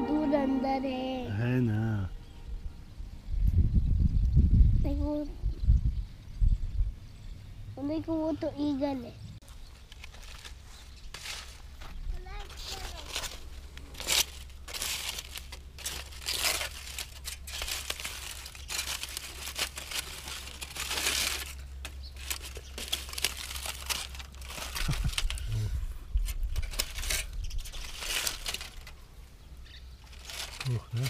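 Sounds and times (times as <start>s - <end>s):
aluminium foil crinkling and tearing: 9.9s - 11.7s, 12.4s - 29.0s, 30.0s - 31.0s.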